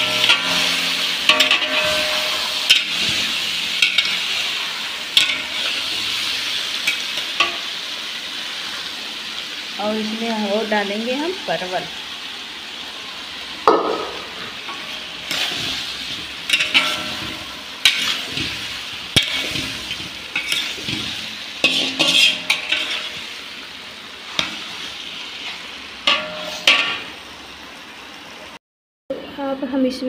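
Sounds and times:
vegetables sizzling in oil: 0.0s - 28.6s
spatula scraping a pot: 14.7s - 23.3s.

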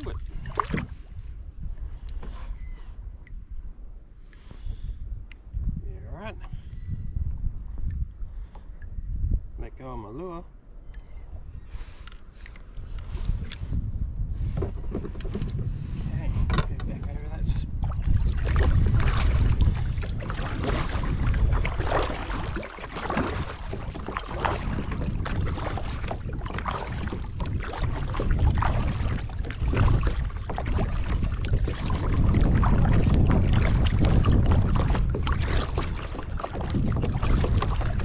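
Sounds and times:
kayak paddle splashing: 0.0s - 1.2s, 17.8s - 38.0s
wind rumble on microphone: 0.0s - 38.0s.

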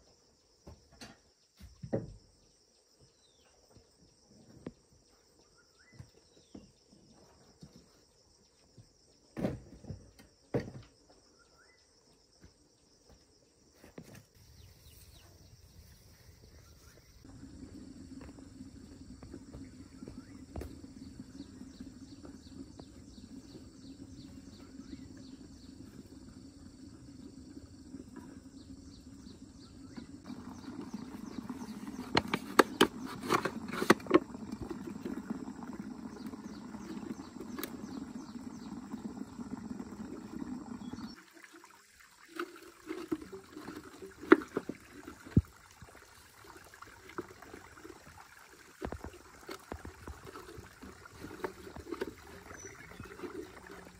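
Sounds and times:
water trickling: 17.2s - 53.9s.

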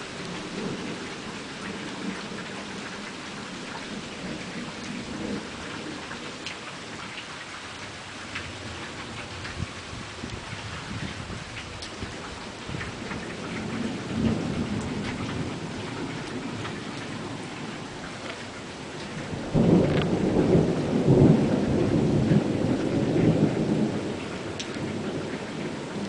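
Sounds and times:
steady rain: 0.0s - 26.0s
thunder rumble: 8.6s - 26.0s
loud thunderclap: 19.3s - 24.1s.

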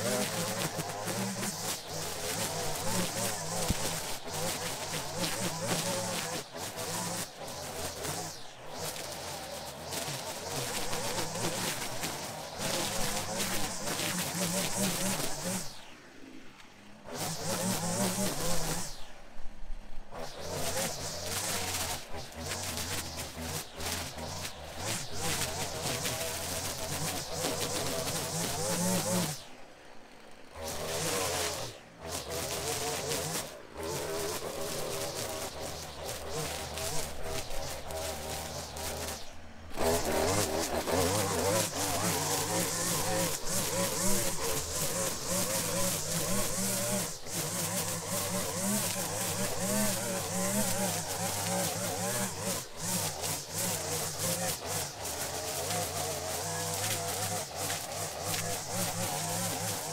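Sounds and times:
string trimmer cutting grass: 0.0s - 59.9s.

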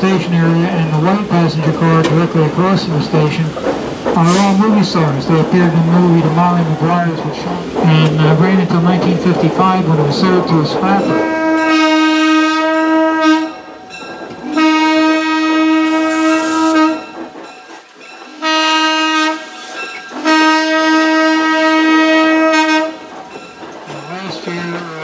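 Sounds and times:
train horn blasts: 11.1s - 13.8s, 14.4s - 17.2s, 18.4s - 19.6s, 20.2s - 23.1s.

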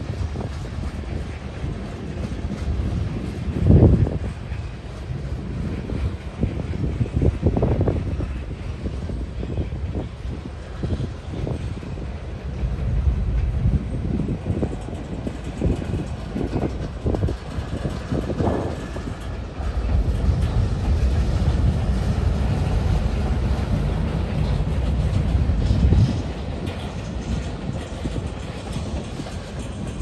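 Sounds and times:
wheels knocking and clattering: 9.9s - 30.0s.

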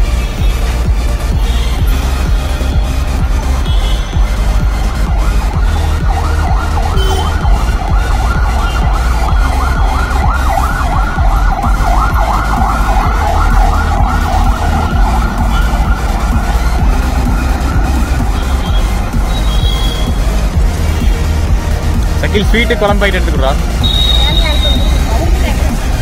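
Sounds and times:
electronic music: 0.0s - 26.0s
heavy bass: 0.0s - 26.0s
siren-like warbling: 4.1s - 21.2s, 23.7s - 25.7s.

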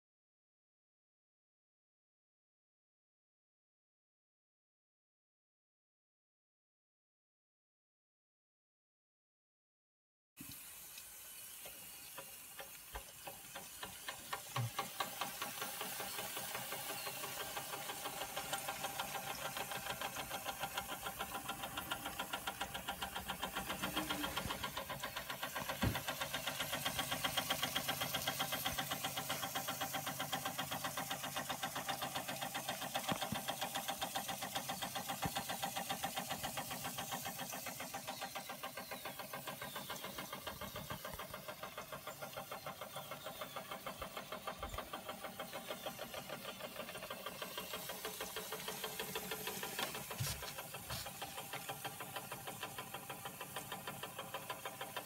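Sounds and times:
toy steam engine chuffing: 10.5s - 55.0s.

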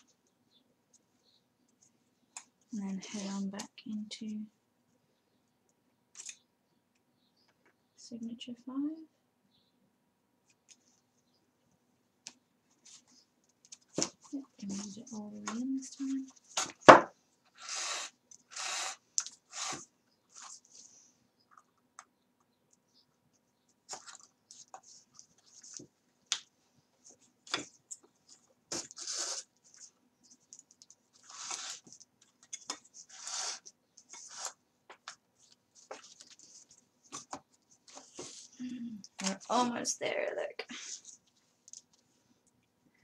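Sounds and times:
paper pages rustling: 23.8s - 26.0s, 27.0s - 38.6s
thread pulled through paper: 30.8s - 34.6s.

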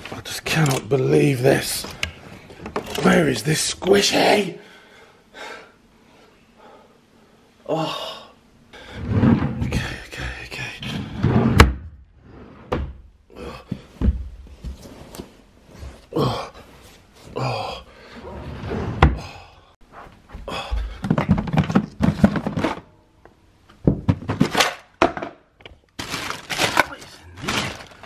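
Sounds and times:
rustling of clothes and toys: 0.0s - 4.4s, 13.6s - 17.6s, 19.8s - 23.0s, 23.6s - 28.0s.

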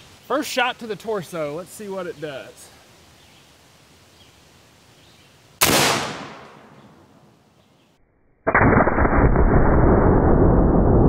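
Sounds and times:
air rifle shot: 5.6s - 6.8s, 8.5s - 10.2s.

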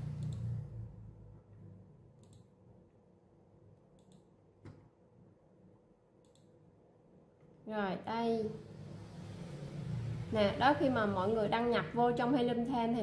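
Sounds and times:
computer mouse clicks: 0.0s - 0.6s, 2.2s - 2.6s, 3.9s - 4.9s, 6.2s - 6.6s.

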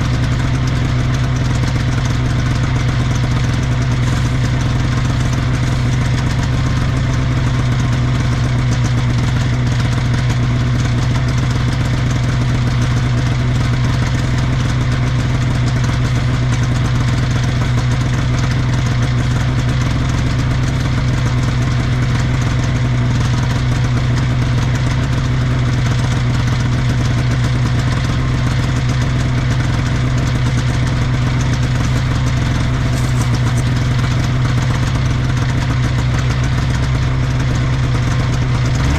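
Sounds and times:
snowmobile engine idling: 0.0s - 38.9s.

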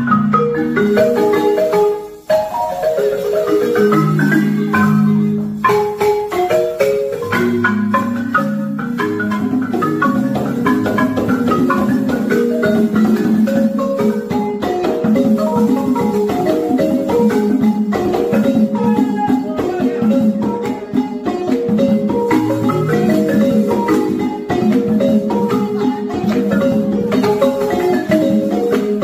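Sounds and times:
wooden xylophones playing quick runs: 0.0s - 29.0s.

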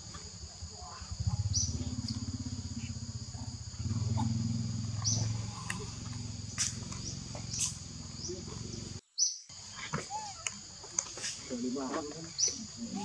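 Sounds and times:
high insect-like whine: 0.0s - 13.0s
low buzzing drone: 1.2s - 9.0s
monkey squeaks: 10.0s - 10.5s.

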